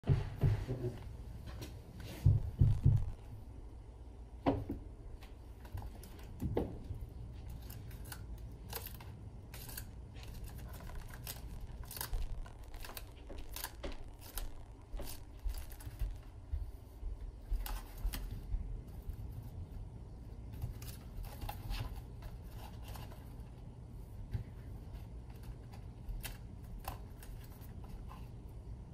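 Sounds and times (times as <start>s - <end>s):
heavier thumps: 2.2s - 3.5s.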